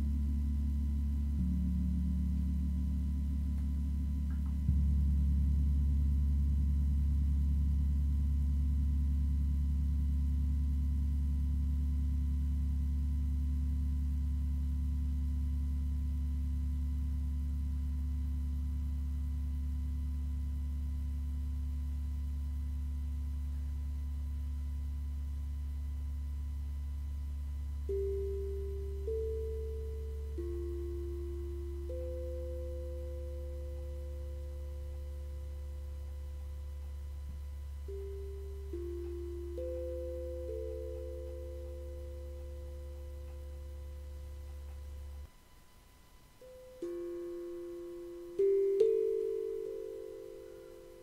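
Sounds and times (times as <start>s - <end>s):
higher ringing tone: 27.9s - 36.5s, 37.8s - 45.2s, 46.4s - 51.0s.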